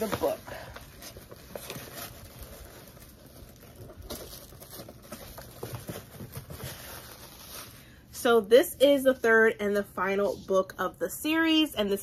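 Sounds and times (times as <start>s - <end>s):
hands rummaging through box: 0.0s - 7.8s.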